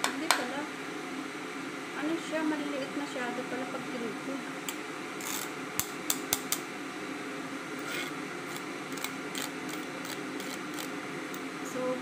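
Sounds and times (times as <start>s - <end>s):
steady low hum: 0.0s - 12.0s
grater and knife scraping: 7.8s - 11.0s.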